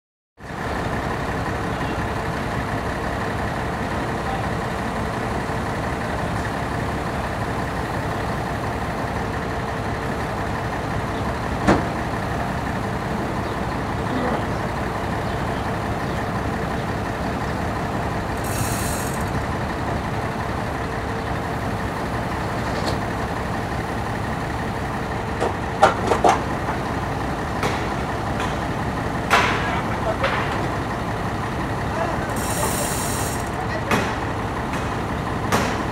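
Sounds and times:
diesel engine running: 0.4s - 35.9s
knocks and clanks: 25.4s - 26.8s, 27.6s - 30.7s, 33.8s - 35.9s.

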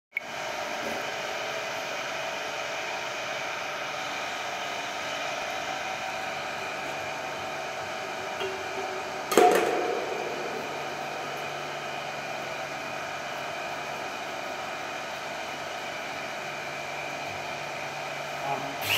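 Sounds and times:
pump motor whirring: 0.2s - 18.9s
loud knock: 9.3s - 11.1s.

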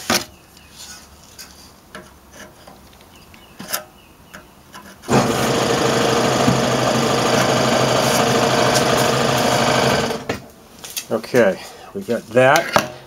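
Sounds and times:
loud mechanical running noise: 5.1s - 10.5s.

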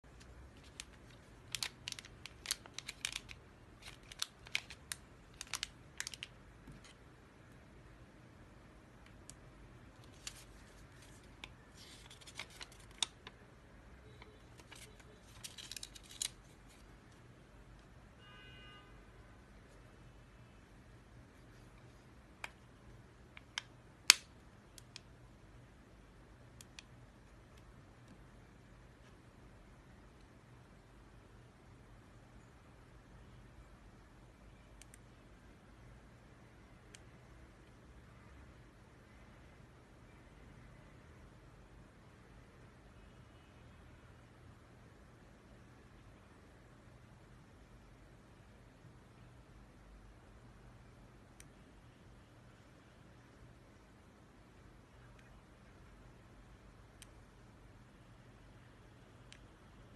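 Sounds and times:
plastic bag crinkling: 0.6s - 6.3s, 14.6s - 16.8s.

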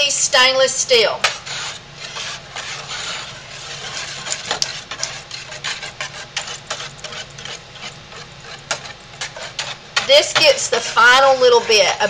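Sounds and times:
whisk swishing in batter: 1.2s - 12.0s
whisk wires clicking against pot: 3.6s - 10.8s.

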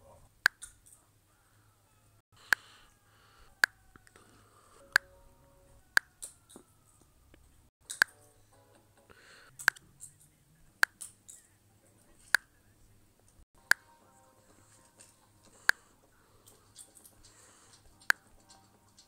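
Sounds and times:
faint low hum: 0.0s - 19.0s
sharp clicks: 2.4s - 2.8s, 5.9s - 8.2s, 9.5s - 10.2s, 15.0s - 19.0s.

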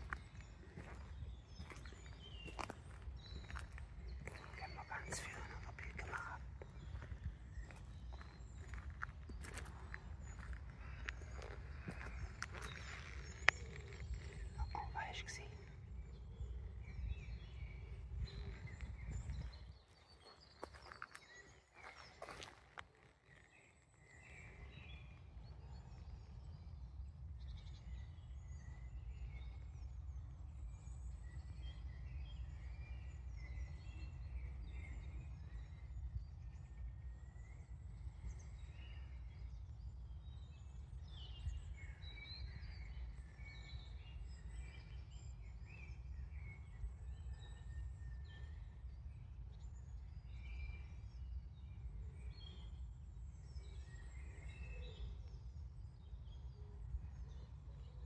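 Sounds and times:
steady low rumble: 0.0s - 20.8s
small birds chirping: 0.0s - 58.0s.

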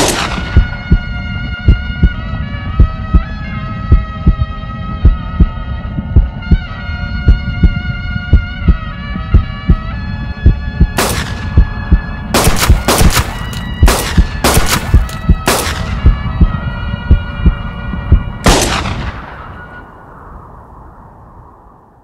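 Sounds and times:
revolver gunshots with echo: 0.0s - 0.6s, 11.0s - 11.6s, 12.4s - 16.0s, 18.4s - 19.4s
western film score: 0.0s - 21.2s
low drumbeat: 0.1s - 2.2s, 3.9s - 9.8s, 10.4s - 18.3s.

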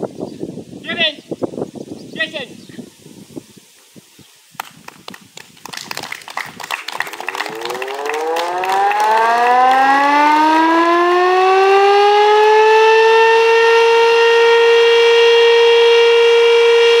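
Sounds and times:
siren wailing: 7.3s - 17.0s.

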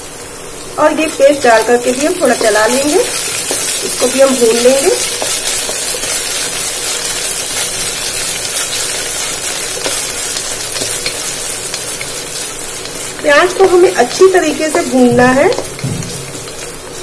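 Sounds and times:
onions sizzling in hot oil: 0.0s - 17.0s
spatula scraping and tapping pan: 2.2s - 7.0s, 8.1s - 11.8s, 14.7s - 16.7s.

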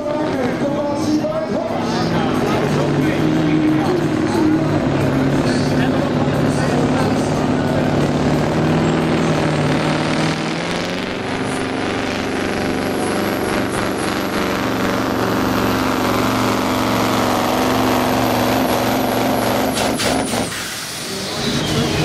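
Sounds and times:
truck diesel engine under load: 0.0s - 22.0s.

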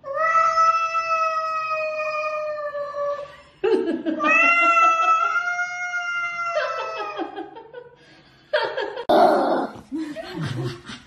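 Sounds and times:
cat yowling: 0.0s - 3.2s, 4.2s - 7.2s.

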